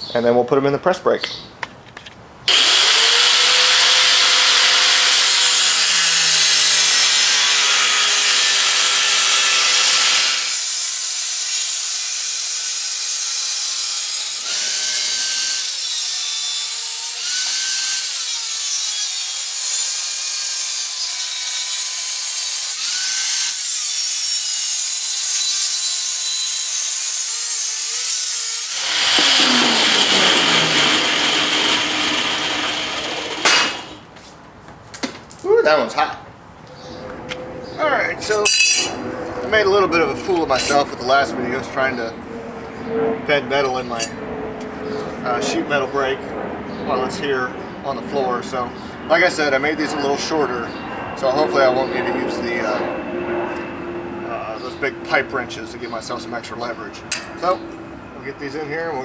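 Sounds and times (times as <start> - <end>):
angle grinder cutting steel: 2.5 - 34.0.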